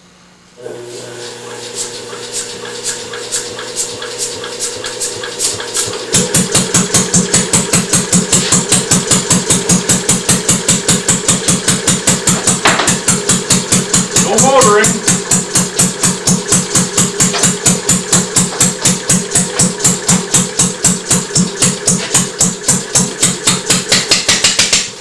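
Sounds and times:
electric motor hum with clicking: 0.3 - 25.0
single-cylinder engine running: 0.6 - 25.0.

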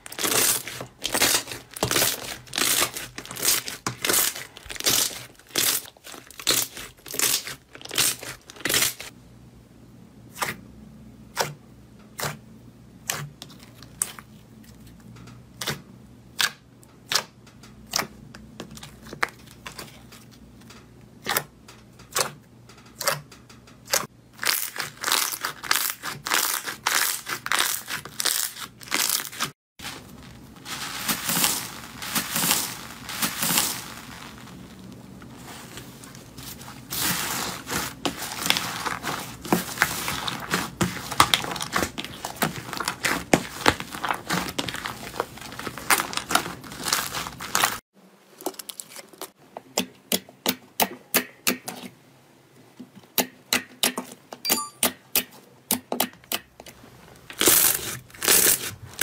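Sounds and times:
bead slime crunching: 0.0 - 9.1, 24.4 - 47.8
slime squishing: 0.0 - 9.1, 23.8 - 47.8.

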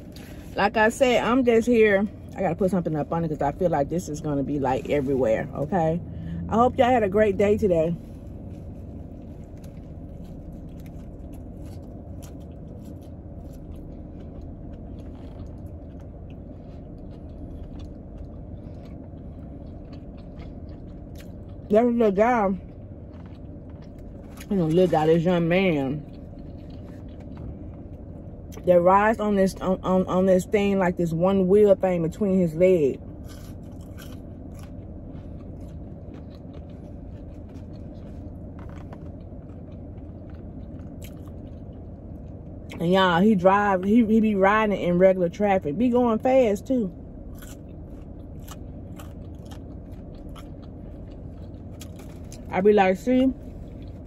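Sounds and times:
car cabin hum: 0.0 - 54.0
crisp crunches and clicks: 8.0 - 21.6, 33.2 - 42.8, 47.3 - 52.5
person chewing: 8.0 - 21.7, 22.6 - 24.8, 26.0 - 28.6, 33.0 - 42.8, 47.1 - 52.5, 53.4 - 54.0.

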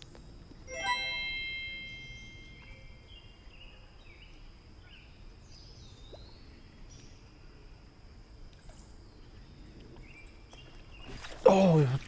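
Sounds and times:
chime sound effect: 0.7 - 3.1.

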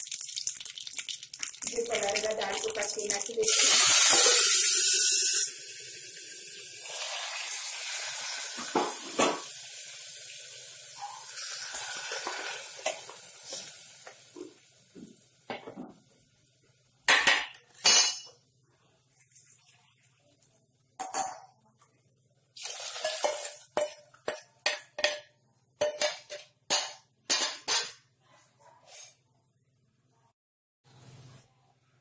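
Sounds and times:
rice sizzling in hot ghee: 0.0 - 15.4, 22.6 - 24.6.

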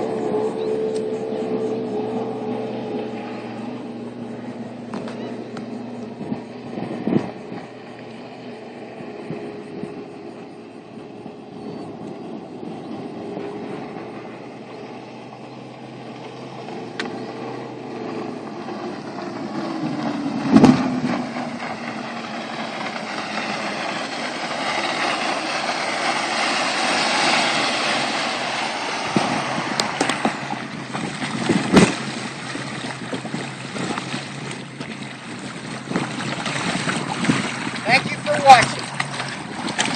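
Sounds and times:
outboard motor running: 0.0 - 39.9
water spray: 22.3 - 34.0.

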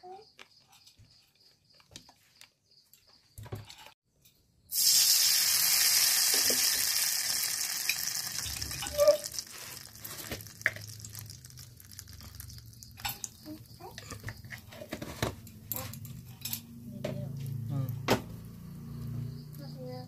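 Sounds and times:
egg sizzling in hot oil: 4.7 - 14.7.

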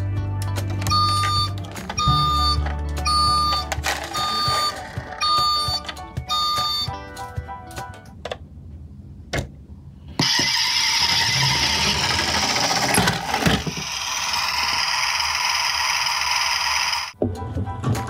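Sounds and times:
toy truck engine sound effect: 0.9 - 6.9, 10.2 - 17.2.

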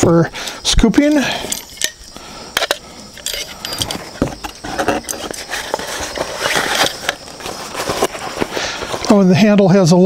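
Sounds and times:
digging tool clicking and knocking: 1.4 - 7.2
fabric pouch rustling: 3.6 - 9.2.

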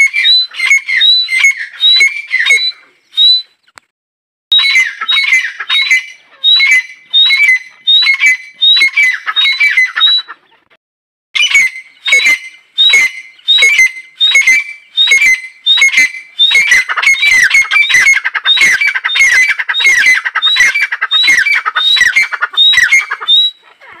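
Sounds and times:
francolin calling: 4.5 - 10.5, 11.4 - 24.0.

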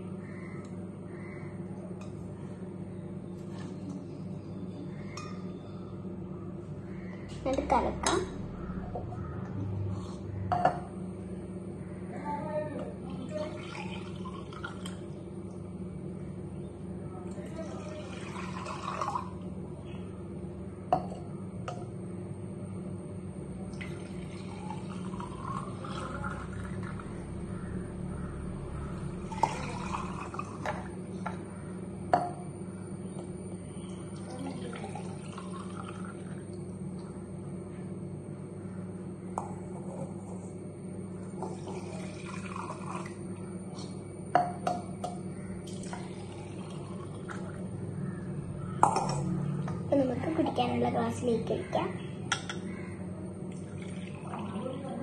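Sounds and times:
steady low hum: 0.0 - 55.0
water pouring into a glass: 13.3 - 15.1, 17.4 - 19.5, 23.7 - 27.2, 29.2 - 30.9, 33.9 - 36.6, 41.4 - 43.4, 45.7 - 47.7, 53.5 - 55.0.

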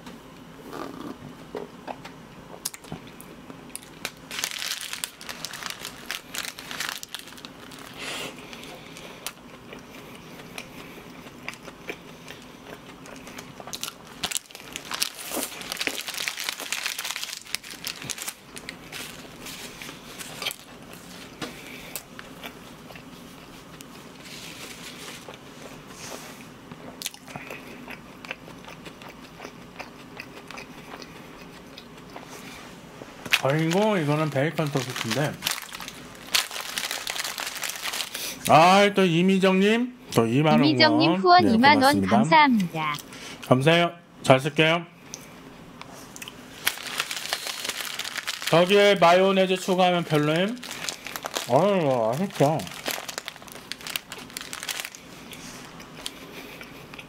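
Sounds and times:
paper wrapper crinkling: 3.8 - 9.4, 13.7 - 21.3, 33.3 - 38.4, 46.6 - 55.1
chewing and mouth smacking: 9.0 - 14.0, 26.7 - 32.4, 54.9 - 57.0.

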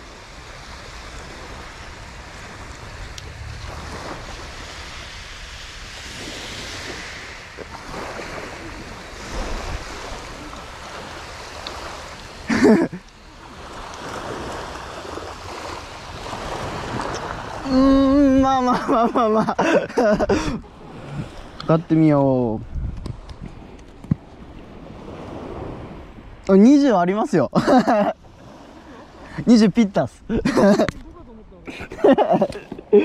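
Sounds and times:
wind on microphone: 0.0 - 12.3, 13.5 - 19.1, 19.8 - 26.4
waves washing on gravel beach: 0.0 - 22.6.

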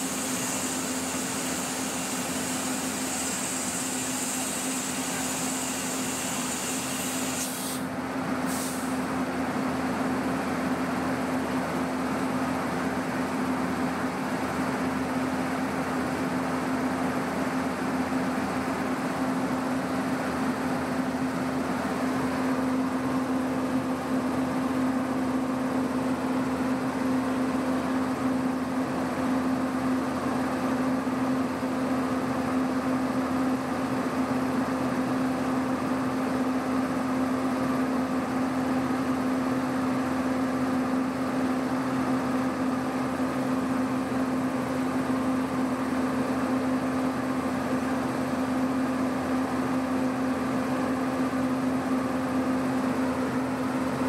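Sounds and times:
locomotive cooling blowers humming: 40.6 - 54.0.

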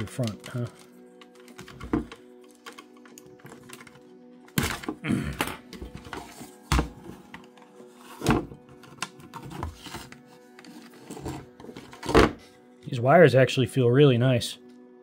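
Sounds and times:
plastic parts handled with thunks: 0.2 - 7.6, 8.2 - 10.2, 11.1 - 12.4.

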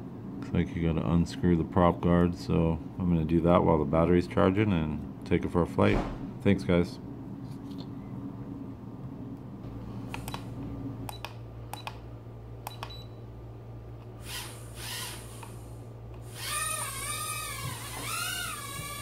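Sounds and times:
high whine of tiny motors: 13.9 - 19.0.

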